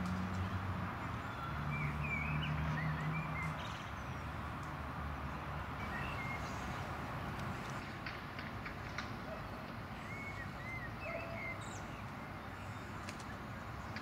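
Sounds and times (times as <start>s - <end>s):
distant traffic hum: 0.0s - 14.0s.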